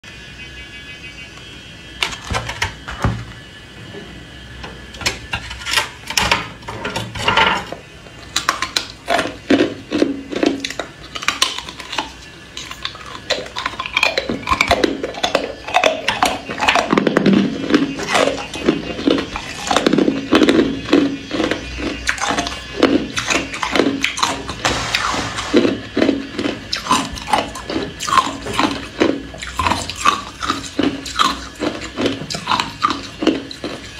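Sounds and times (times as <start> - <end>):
ice cubes crunched by biting: 18.0 - 33.9.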